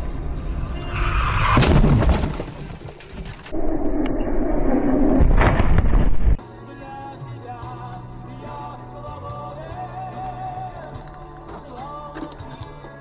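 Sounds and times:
road and engine rumble: 0.0 - 3.6
loud car crash impact: 1.1 - 2.8.

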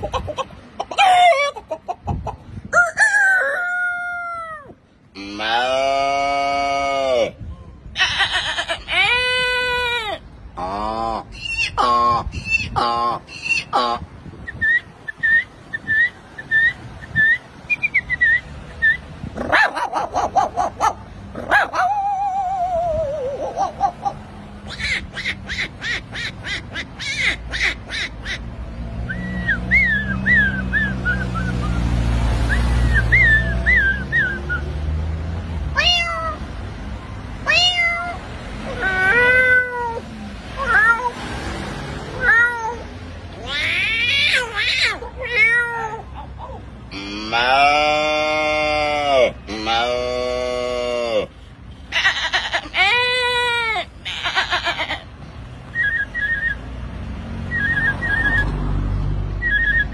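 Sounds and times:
man imitating dog barks and howl: 1.0 - 1.6, 5.4 - 7.4, 19.4 - 24.2, 38.0 - 40.0, 43.8 - 51.4
cat meowing: 35.7 - 36.4, 37.4 - 40.0, 40.6 - 41.2, 42.2 - 46.3
cat chirping calls: 35.7 - 36.5, 37.4 - 41.2, 42.1 - 46.7.

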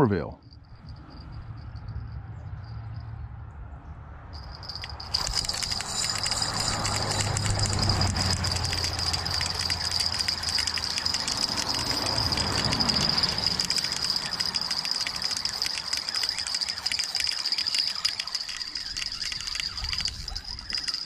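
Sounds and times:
insects singing high-pitched: 4.4 - 21.0.

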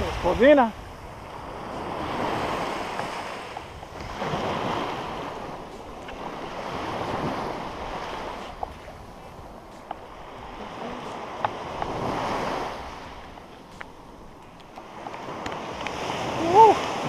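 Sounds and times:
surf waves breaking on beach: 0.0 - 17.0
wind on microphone: 0.0 - 17.0.

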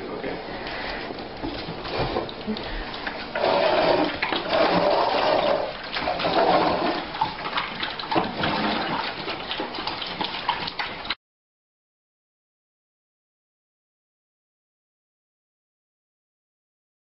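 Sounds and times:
puppies chewing and slurping: 0.0 - 11.2.

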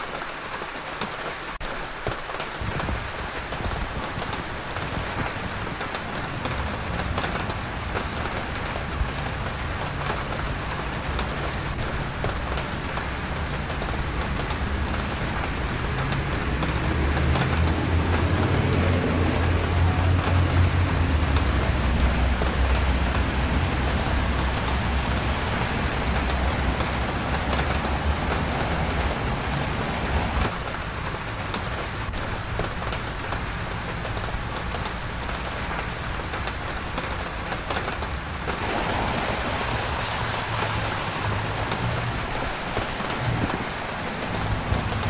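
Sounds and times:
rain falling: 0.0 - 45.0
traffic on wet pavement: 0.0 - 45.0.

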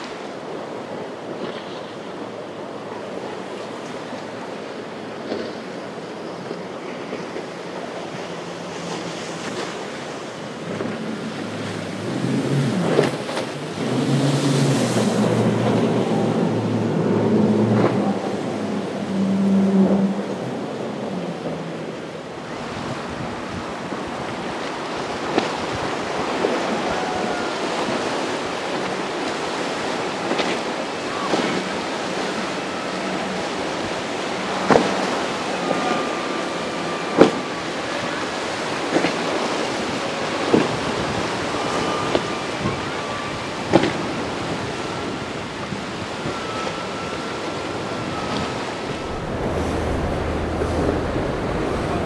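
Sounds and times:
surf and choppy waves: 0.0 - 52.0
wind buffeting microphone: 40.6 - 52.0.

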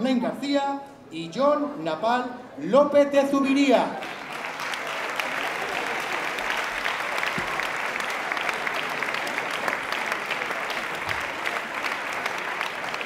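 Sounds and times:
audience applauding: 4.0 - 13.0.

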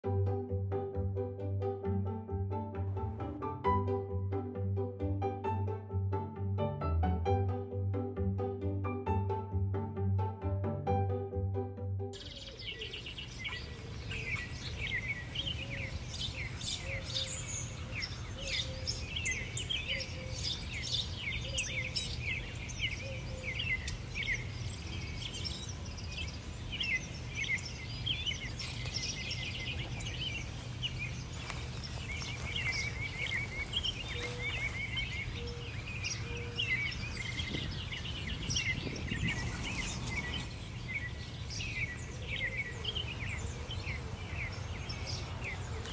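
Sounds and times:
small birds chirping: 12.2 - 45.9
low outdoor rumble: 36.6 - 42.4
low repeated bird note: 37.4 - 42.6.

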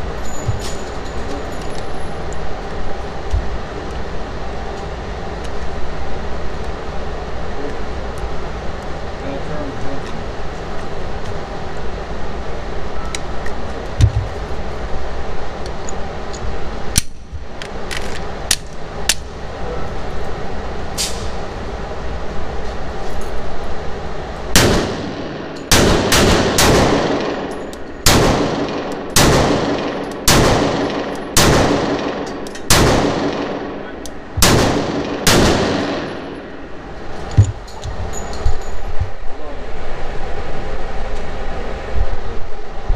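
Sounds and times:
steady background hum: 0.0 - 42.9
pistol shots echoing: 24.6 - 36.7.

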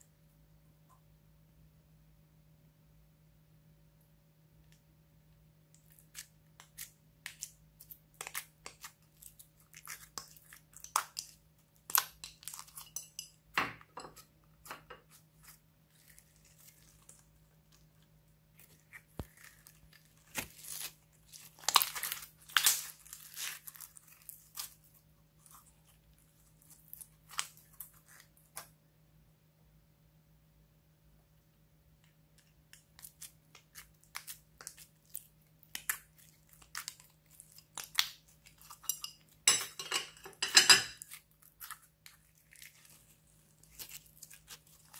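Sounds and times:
slime crackling and popping: 18.5 - 28.7, 32.8 - 38.7, 41.0 - 44.9.

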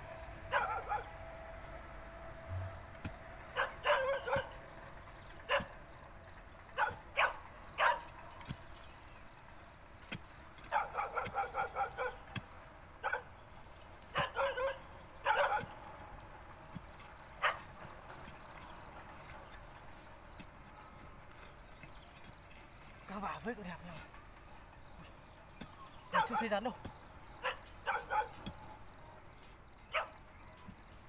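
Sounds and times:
dog barking and yipping: 0.5 - 1.1, 3.5 - 4.6, 5.5 - 5.8, 6.8 - 8.2, 10.7 - 12.3, 13.0 - 13.3, 14.1 - 15.7, 17.4 - 17.7, 26.1 - 26.6, 27.4 - 28.4, 29.9 - 30.2
digging bar striking soil: 2.5 - 4.8, 5.6 - 24.1, 24.9 - 29.8.

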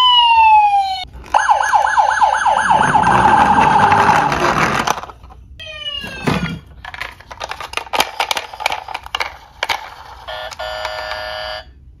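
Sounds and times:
plastic toy cars clattering: 2.9 - 5.4, 6.1 - 11.3
toy electronic buzzing tone: 10.3 - 11.7.

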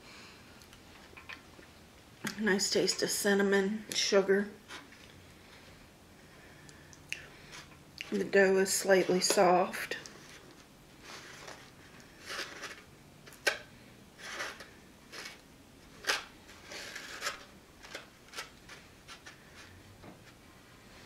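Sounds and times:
plastic fork scraping through pie: 10.2 - 12.9, 14.2 - 15.4, 16.0 - 19.8.

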